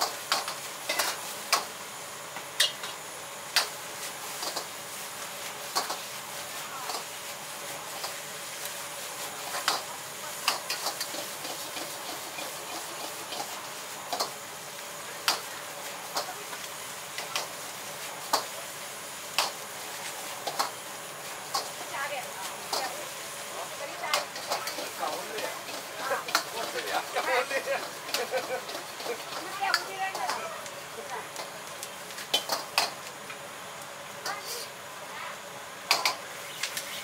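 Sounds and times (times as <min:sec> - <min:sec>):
food sizzling in a wok: 0:00.0 - 0:37.0
metal utensils scraping a wok: 0:10.4 - 0:14.4, 0:22.5 - 0:30.4.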